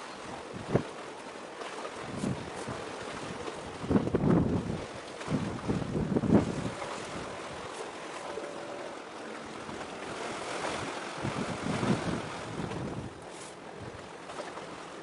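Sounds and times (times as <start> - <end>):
sea: 0.0 - 15.0
wind buffeting microphone: 0.2 - 1.0, 1.9 - 14.3
rushing wind: 2.0 - 8.7, 9.4 - 14.1.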